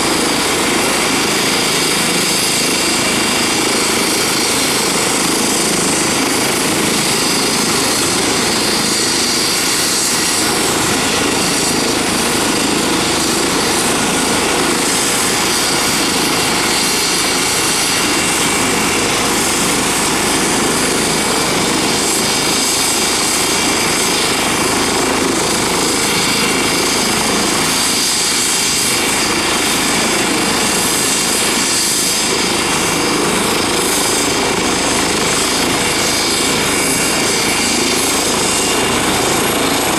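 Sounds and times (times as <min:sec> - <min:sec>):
helicopter rotor noise: 0:00.0 - 0:39.9
helicopter turbine whine: 0:00.0 - 0:39.9.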